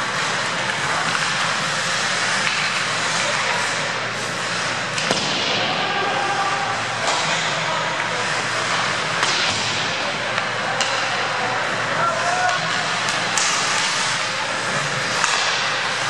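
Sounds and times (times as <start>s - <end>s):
skates hissing on ice: 0.0s - 5.1s, 11.9s - 16.0s
hockey sticks striking puck: 0.0s - 16.0s.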